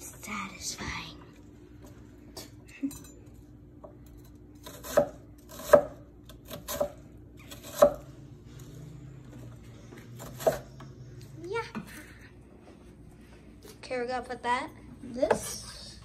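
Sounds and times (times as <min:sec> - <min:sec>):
knife chopping on wooden board: 0:04.6 - 0:08.1, 0:10.2 - 0:10.6.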